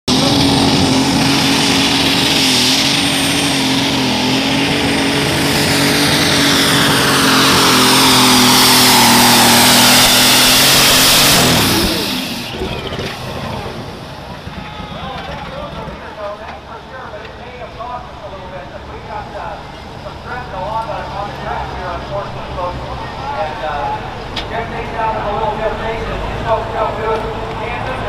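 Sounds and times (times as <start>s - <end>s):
tractor engine running at high revs: 0.1s - 17.4s.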